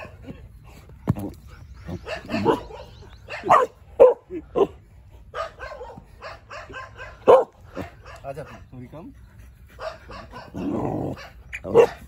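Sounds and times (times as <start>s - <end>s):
dog barking: 2.0s - 8.7s, 9.8s - 12.0s.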